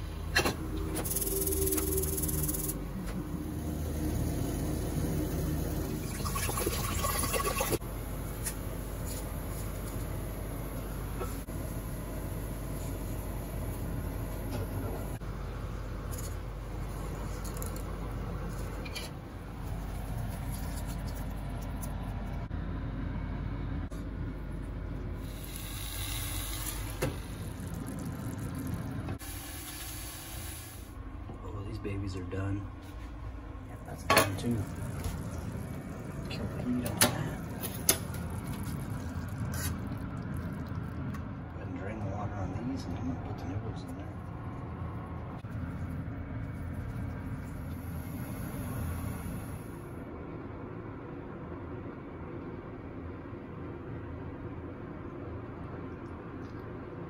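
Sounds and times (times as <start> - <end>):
steady hum: 0.0 - 57.0
water pouring into a pot: 5.8 - 7.8, 25.2 - 30.9, 37.4 - 41.2.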